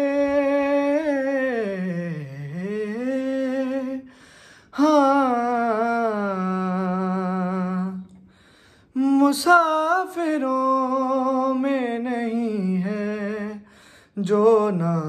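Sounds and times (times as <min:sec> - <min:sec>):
man singing a lament: 0:00.0 - 0:08.2, 0:08.8 - 0:15.0.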